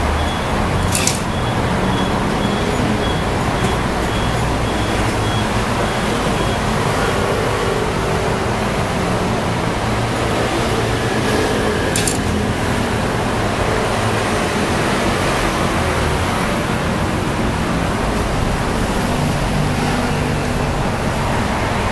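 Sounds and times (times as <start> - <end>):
reversing beeper: 0.0 - 7.2
street traffic: 0.0 - 21.9
sharp click: 0.9 - 1.3, 12.0 - 12.4.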